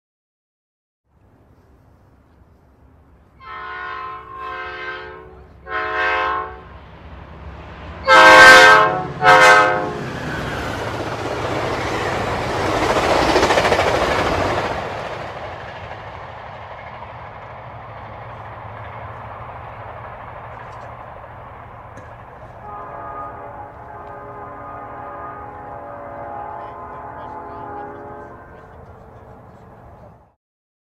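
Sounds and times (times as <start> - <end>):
train rushing rumble: 2.0 - 30.4
train horn blasts: 3.4 - 6.7, 8.0 - 10.1, 22.4 - 29.6.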